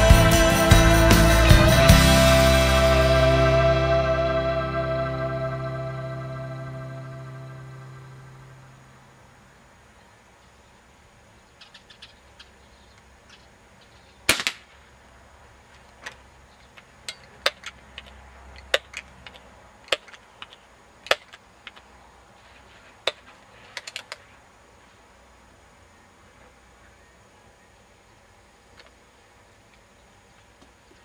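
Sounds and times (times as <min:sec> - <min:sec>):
air pistol shot: 0:14.3 - 0:14.7.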